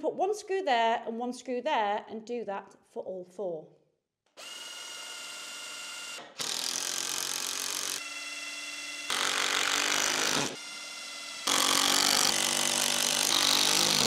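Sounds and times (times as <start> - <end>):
cordless drill whining: 4.4 - 14.0.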